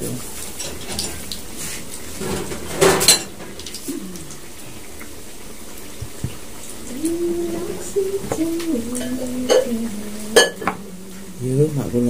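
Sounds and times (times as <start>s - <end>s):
kitchen utensils clattering: 0.0s - 3.7s, 7.4s - 10.9s.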